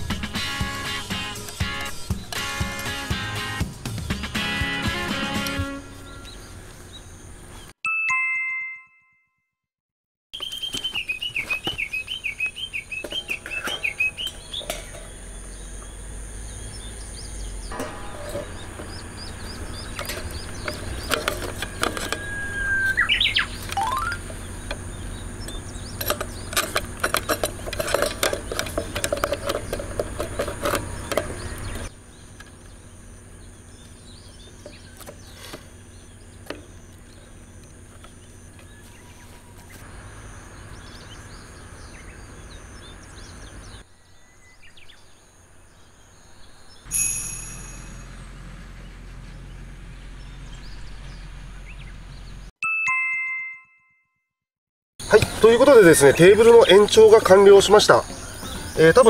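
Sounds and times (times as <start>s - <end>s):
outdoor ambience: 0.0s - 7.8s, 10.4s - 52.6s, 55.0s - 59.0s
brief chime: 7.9s - 9.6s, 46.9s - 48.3s
bird warbling trill: 10.4s - 27.7s
bird call swooping up and down: 22.1s - 24.4s.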